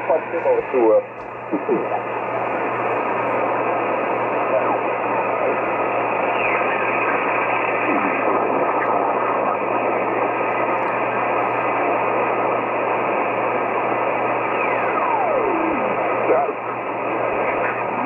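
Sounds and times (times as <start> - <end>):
radio static hiss: 0.0 - 18.0
radio whistles sliding down: 4.6 - 9.6.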